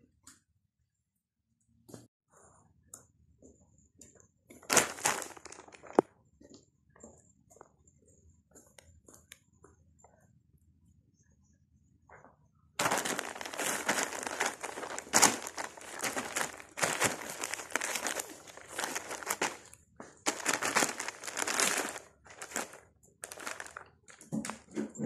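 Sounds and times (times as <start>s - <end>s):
plastic bag crinkling: 4.6s - 6.0s, 12.8s - 24.8s.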